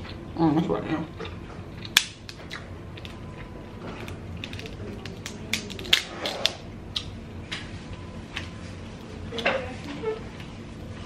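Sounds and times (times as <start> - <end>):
crab shell cracking: 1.8 - 3.2, 4.0 - 7.1.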